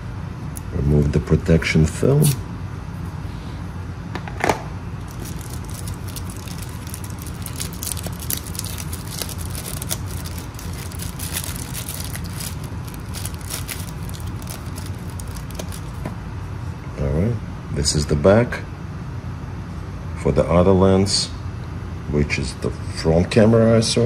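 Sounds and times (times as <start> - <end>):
steady low hum: 0.0 - 24.0
plastic film crackling: 5.0 - 16.1.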